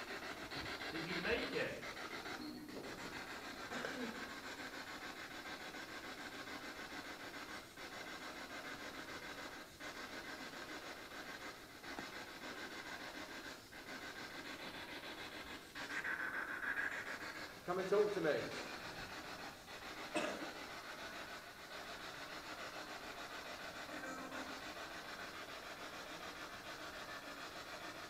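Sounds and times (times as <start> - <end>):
radio static with fast flutter: 1.0 - 1.8.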